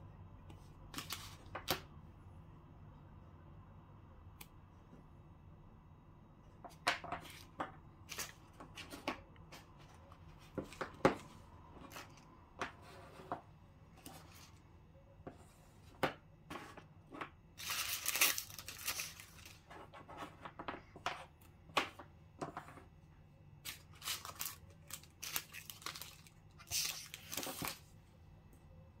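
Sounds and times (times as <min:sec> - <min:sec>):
candy wrappers crinkling: 0:17.6 - 0:19.6, 0:23.6 - 0:27.9.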